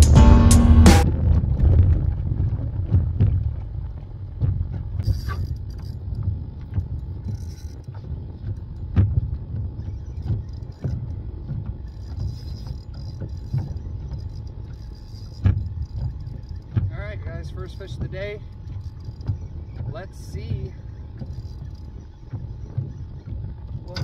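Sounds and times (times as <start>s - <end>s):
music: 0.0s - 1.2s
wind rumbling on microphone: 0.9s - 24.0s
fishing reel clicks and knocks: 5.0s - 24.0s.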